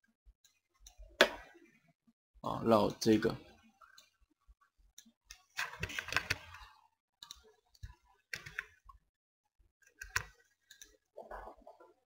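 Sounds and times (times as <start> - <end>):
keyboard and mouse clicking: 5.0 - 6.6, 7.2 - 9.0, 9.8 - 11.0.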